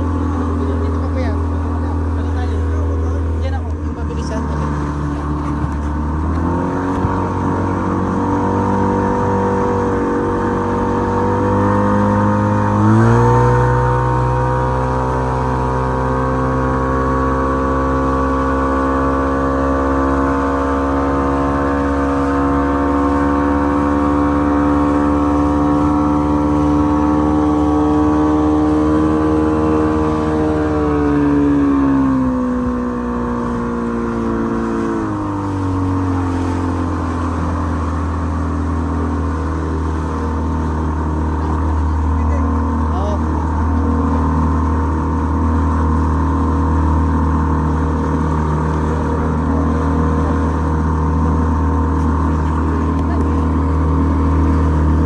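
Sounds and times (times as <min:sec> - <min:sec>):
outboard motor running: 0:00.0 - 0:55.0
rush of boat wake: 0:00.0 - 0:55.0.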